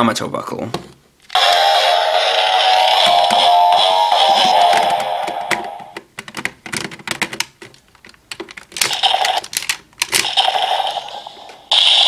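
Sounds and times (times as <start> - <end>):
toy electronic sounds: 1.3 - 6.0, 8.8 - 9.5, 10.2 - 12.0
plastic toy clicks and clacks: 4.3 - 11.6.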